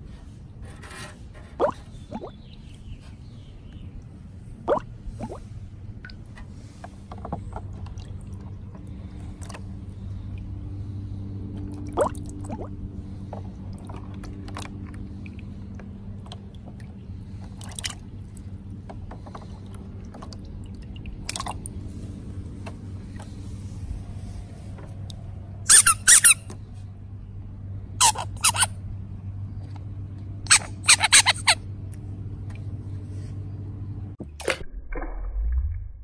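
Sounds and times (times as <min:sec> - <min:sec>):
steady low hum: 0:00.0 - 0:36.0
water splashes: 0:01.6 - 0:02.4, 0:04.6 - 0:18.7, 0:19.4 - 0:24.2
wet plops and squishes: 0:11.6 - 0:12.7, 0:19.6 - 0:21.8.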